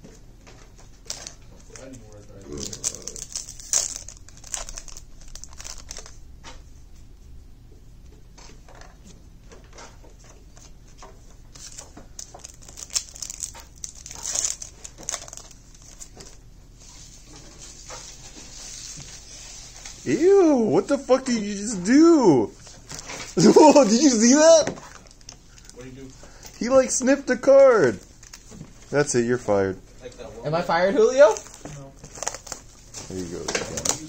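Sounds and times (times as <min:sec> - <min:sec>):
cards being handled: 0:00.5 - 0:06.6, 0:09.8 - 0:16.4, 0:17.2 - 0:27.2, 0:31.2 - 0:34.0
foil wrappers crinkling and tearing: 0:00.9 - 0:06.2, 0:11.5 - 0:16.4, 0:17.7 - 0:27.2, 0:27.8 - 0:29.0, 0:31.0 - 0:34.0.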